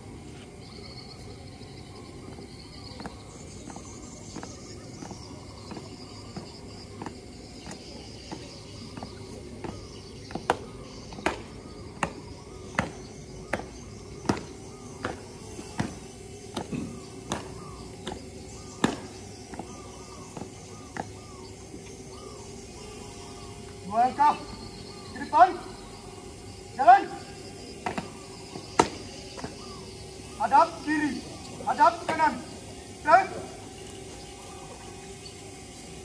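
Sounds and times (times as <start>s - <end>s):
marching feet on concrete: 2.2s - 22.3s, 27.8s - 29.8s.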